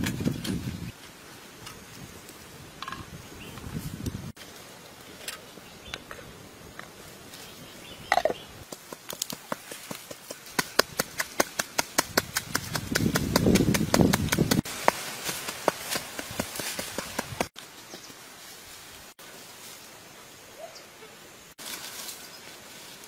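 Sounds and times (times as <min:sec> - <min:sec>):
pestle pounding in mortar: 0:10.6 - 0:14.6.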